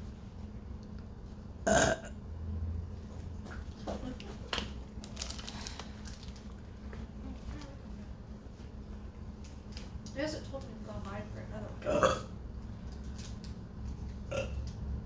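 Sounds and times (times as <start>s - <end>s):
person burping: 1.6s - 2.2s, 11.8s - 12.3s, 14.3s - 14.6s.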